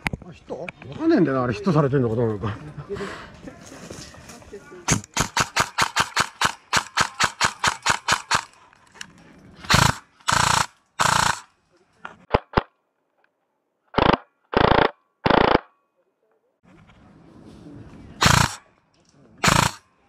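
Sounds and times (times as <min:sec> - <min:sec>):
airsoft gun firing: 0:04.9 - 0:08.5, 0:09.7 - 0:11.5, 0:14.0 - 0:15.7, 0:18.2 - 0:18.6, 0:19.4 - 0:19.8.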